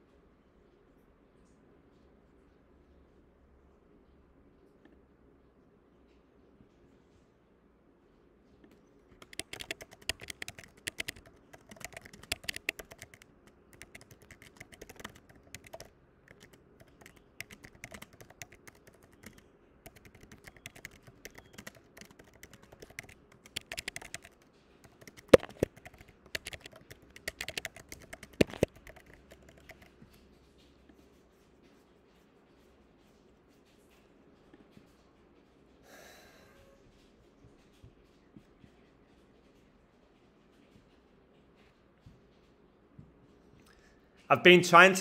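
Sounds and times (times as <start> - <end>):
typing on computer keyboard: 9.1 - 30.4.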